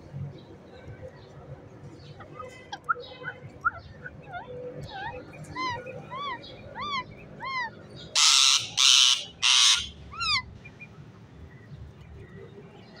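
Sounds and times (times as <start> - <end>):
parrot calls: 3.7 - 10.4
parrot harsh screeches: 8.2 - 10.4.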